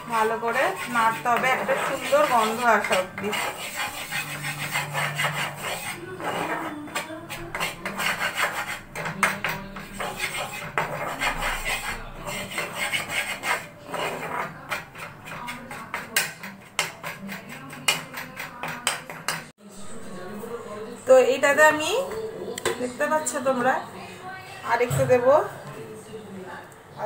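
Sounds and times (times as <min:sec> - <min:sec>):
spatula scraping frying pan: 0:00.0 - 0:20.6.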